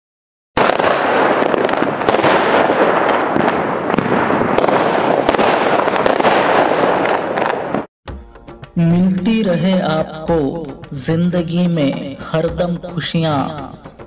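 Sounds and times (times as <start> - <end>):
fireworks crackling and popping: 0.6 - 7.9.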